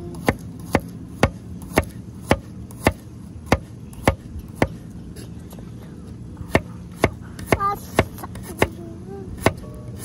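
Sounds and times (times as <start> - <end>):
steady low hum: 0.0 - 10.0
tool chopping or hammering: 0.1 - 4.8, 6.5 - 8.8.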